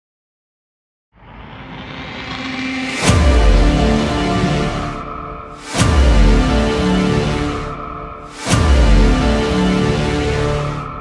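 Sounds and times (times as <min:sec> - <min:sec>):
dramatic orchestral chords: 0:02.8 - 0:11.0.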